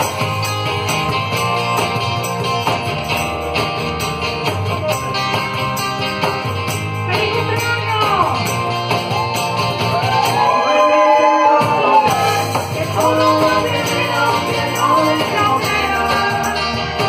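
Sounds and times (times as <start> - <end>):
strummed acoustic guitar: 0.0 - 10.6
hand percussion: 0.0 - 10.8, 11.6 - 17.0
tambourine jingling: 0.0 - 10.9, 12.0 - 17.0
person singing: 10.4 - 17.0.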